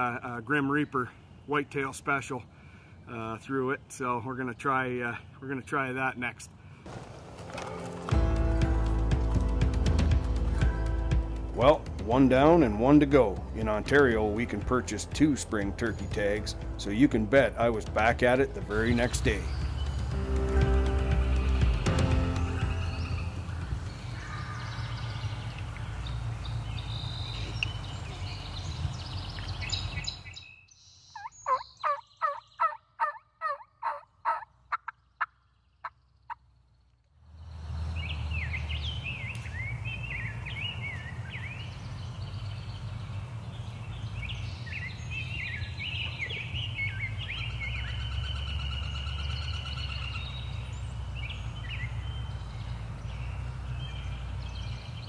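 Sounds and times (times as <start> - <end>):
songbirds chirping: 0.0 - 55.0
wild turkey yelping: 31.2 - 36.4.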